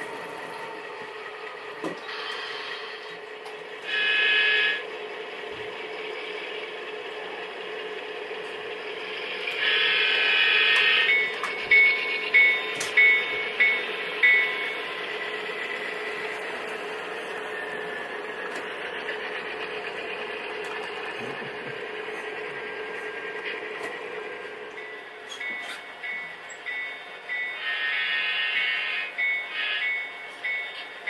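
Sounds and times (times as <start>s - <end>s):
diesel engine running: 0.0s - 31.0s
train air horn blast: 3.9s - 4.8s
train bell ringing: 9.5s - 17.5s, 24.7s - 31.0s.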